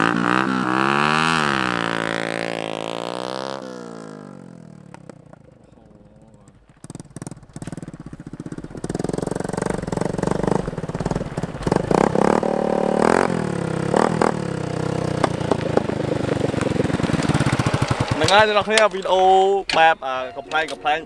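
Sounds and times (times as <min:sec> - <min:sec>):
motorcycle engine revving: 0:00.0 - 0:19.4.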